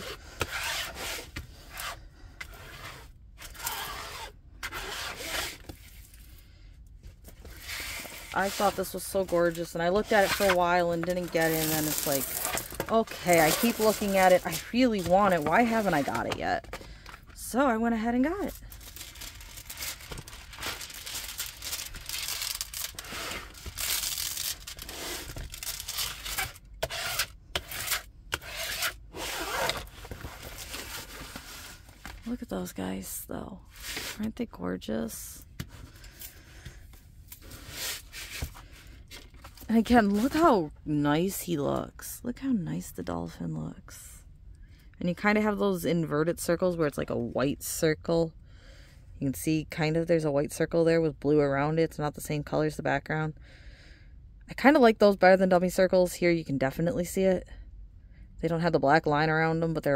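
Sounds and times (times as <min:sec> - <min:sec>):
hand rubbing plastic sheet: 0:07.5 - 0:16.7, 0:18.2 - 0:32.0
plastic film crackling: 0:09.4 - 0:16.3, 0:18.3 - 0:27.9.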